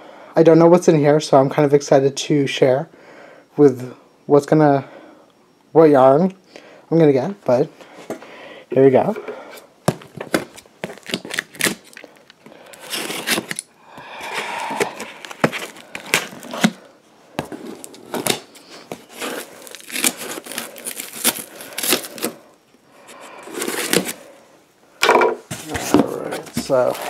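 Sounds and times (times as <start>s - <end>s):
cardboard flaps rustling: 9.8s - 11.7s, 25.5s - 27.0s
packing tape tearing: 10.1s - 13.7s, 14.6s - 16.9s, 17.6s - 22.4s, 23.5s - 24.3s, 26.6s - 27.0s.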